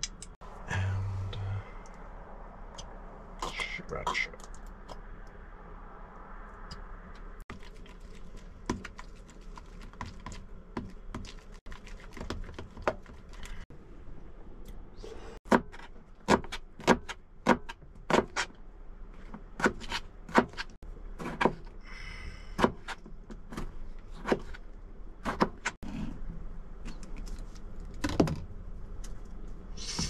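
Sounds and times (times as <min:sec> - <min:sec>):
knife chopping on plastic board: 0:15.5 - 0:18.5, 0:19.6 - 0:21.7, 0:22.6 - 0:24.6, 0:25.2 - 0:25.8.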